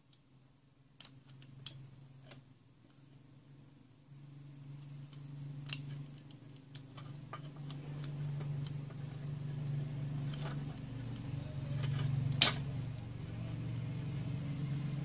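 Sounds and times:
steady low hum: 0:00.0 - 0:15.0
plastic parts clicking and tapping: 0:00.1 - 0:03.2, 0:04.7 - 0:13.0.

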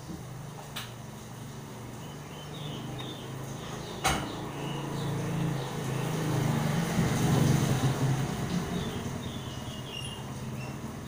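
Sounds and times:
rain hissing: 0:01.0 - 0:11.0
motor scooter passing: 0:01.8 - 0:11.0.

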